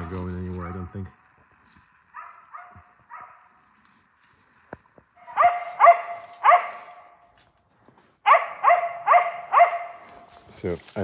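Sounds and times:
dog barking: 0:02.1 - 0:03.6, 0:05.2 - 0:07.2, 0:08.2 - 0:10.2.

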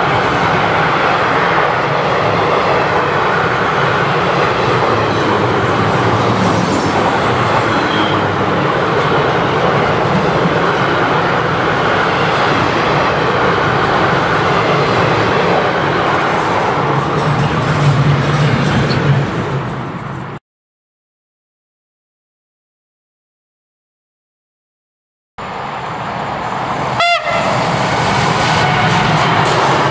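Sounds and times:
train wheels rolling on rails: 0:00.0 - 0:20.4, 0:25.4 - 0:29.9
high wheel squeal: 0:07.5 - 0:08.4.

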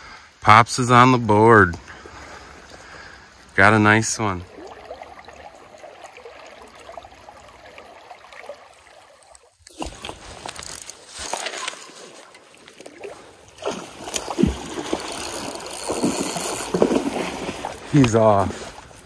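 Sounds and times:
stream water running: 0:00.0 - 0:19.0
fish splashing at surface: 0:04.5 - 0:17.9.

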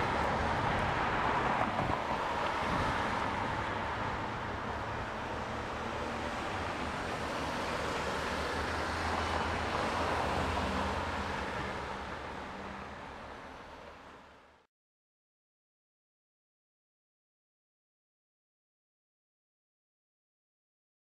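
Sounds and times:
road traffic passing: 0:00.0 - 0:14.6.

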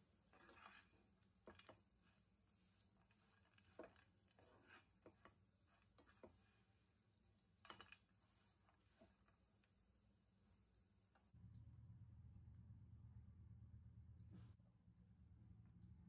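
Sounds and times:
metal spatula scraping a pan: 0:00.0 - 0:06.8.

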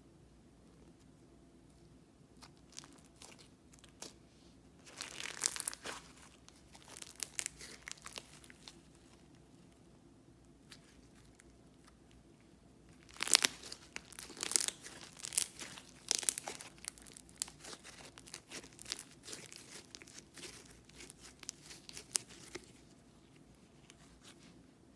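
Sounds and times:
slime crackling and popping: 0:02.4 - 0:04.2, 0:04.8 - 0:09.1, 0:12.9 - 0:22.9.

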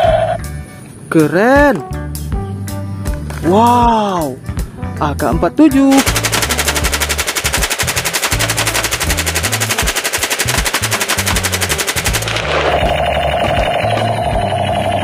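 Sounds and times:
automatic rifle fire: 0:05.9 - 0:14.0.

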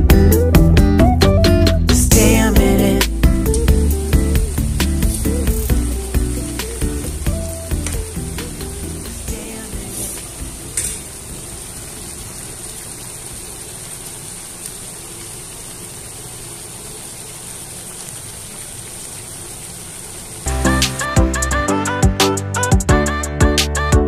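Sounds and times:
sauce bubbling hiss: 0:02.1 - 0:21.1.

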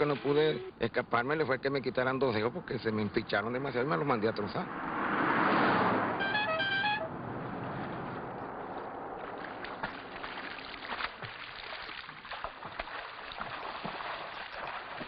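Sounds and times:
high whistled notes: 0:06.2 - 0:07.1
water sloshing and gurgling: 0:07.9 - 0:15.0.

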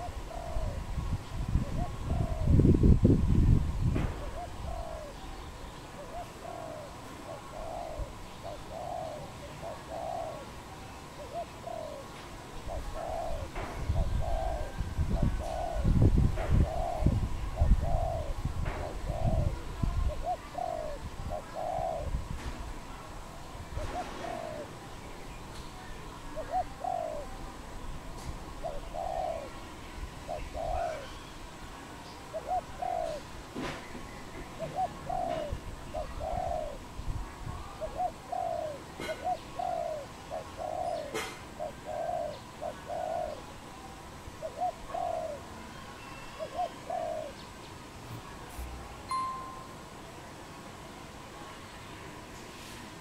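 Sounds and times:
dove cooing: 0:00.0 - 0:03.0, 0:04.1 - 0:22.3, 0:23.7 - 0:24.9, 0:26.3 - 0:27.5, 0:28.4 - 0:31.3, 0:32.2 - 0:33.7, 0:34.4 - 0:43.8, 0:44.4 - 0:45.6, 0:46.3 - 0:47.5.

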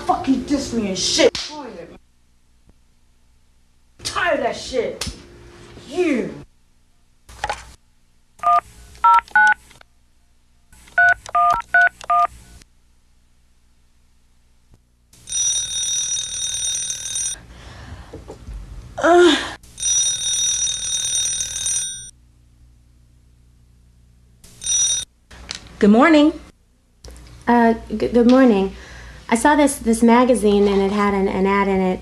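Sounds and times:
touch-tone dialing beeps: 0:08.4 - 0:09.6, 0:11.0 - 0:12.3
telephone ringing: 0:15.2 - 0:17.4, 0:19.7 - 0:22.1, 0:24.5 - 0:25.1.

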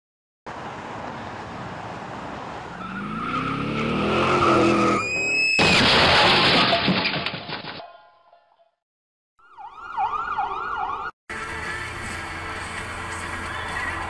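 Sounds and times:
tyre screech: 0:02.8 - 0:06.7
loud crash with clattering: 0:05.6 - 0:07.8.

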